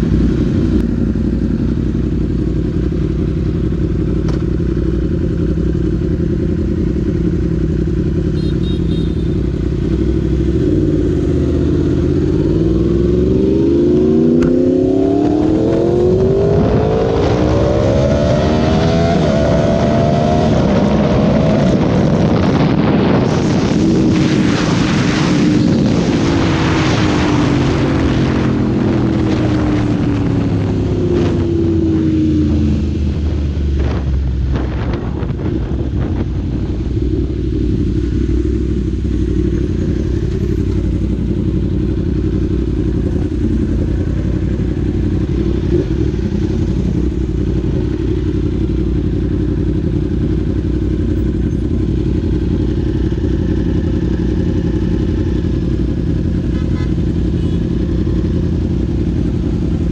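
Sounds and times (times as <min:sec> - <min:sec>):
motorcycle engine: 0:00.0 - 0:59.9
heavy wind rush: 0:09.7 - 0:56.4.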